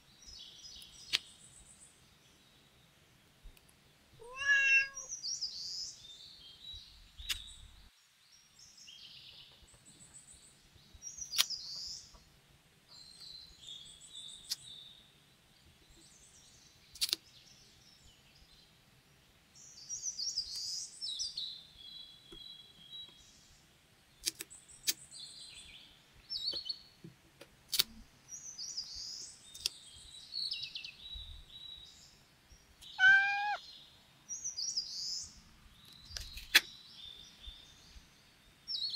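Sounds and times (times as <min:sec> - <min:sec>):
cat meowing: 0:04.2 - 0:05.1, 0:32.8 - 0:33.6
tweezer clicks: 0:17.0 - 0:17.2, 0:24.2 - 0:25.0, 0:27.7 - 0:28.0, 0:29.5 - 0:29.8.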